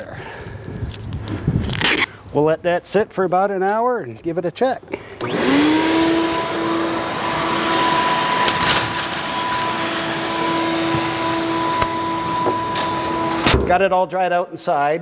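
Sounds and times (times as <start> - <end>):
shop vacuum motor whining: 5.0 - 13.6.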